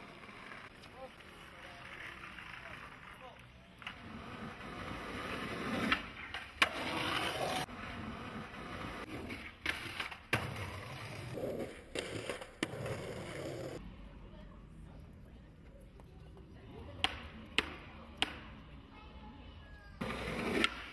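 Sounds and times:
skateboard wheels rolling on concrete: 0.0 - 20.9
skateboard clacking on ground: 16.4 - 18.6, 20.0 - 20.9.

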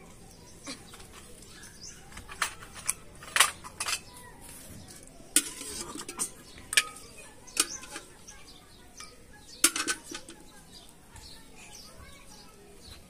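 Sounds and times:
metal ladle clinking on pot: 2.1 - 4.1, 5.3 - 8.3, 8.9 - 10.5.

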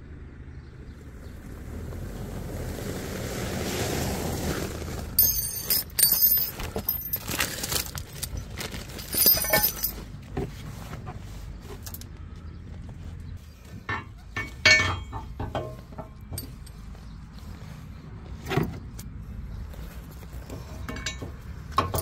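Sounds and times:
metal parts clinking: 5.2 - 10.1, 13.9 - 16.8, 20.8 - 22.0.

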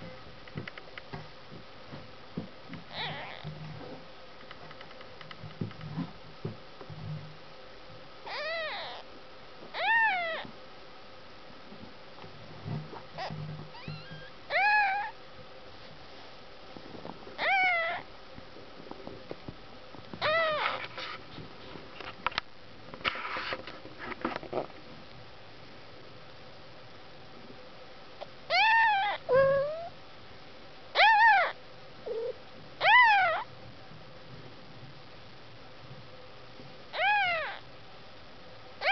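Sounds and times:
kittens mewing: 2.9 - 3.5, 8.3 - 9.0, 9.8 - 10.5, 13.2 - 15.2, 17.4 - 18.0, 20.2 - 20.8, 28.5 - 29.9, 31.0 - 33.5, 37.0 - 37.6
faint kitten squeaks: 2.9 - 3.6, 8.2 - 9.1, 9.7 - 10.5, 13.2 - 15.2, 17.4 - 18.1, 20.2 - 20.9, 28.5 - 30.0, 30.9 - 33.5, 36.9 - 37.6.

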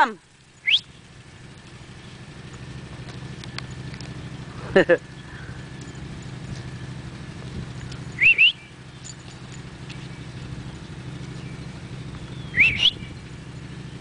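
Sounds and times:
person whistling rising notes: 8.2 - 8.6, 12.5 - 13.0.

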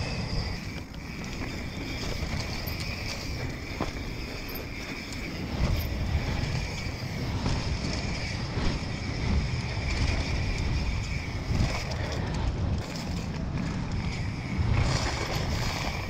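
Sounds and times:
bike knocks and rattles: 0.0 - 16.0
bike tyre roar: 0.0 - 16.0
wind rumble on microphone: 0.0 - 16.0.

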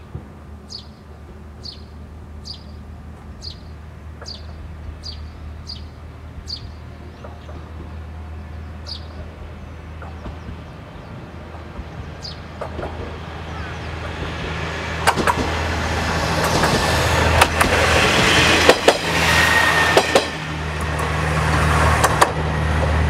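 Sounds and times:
diesel railcar engine droning: 0.0 - 23.0
bird chirping: 0.7 - 1.0, 1.6 - 11.2, 11.8 - 12.6.

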